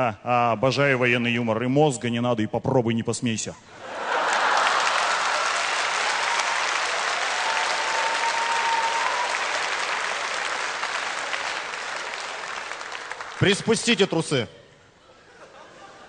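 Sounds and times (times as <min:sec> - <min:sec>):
audience applauding: 0:04.0 - 0:13.9.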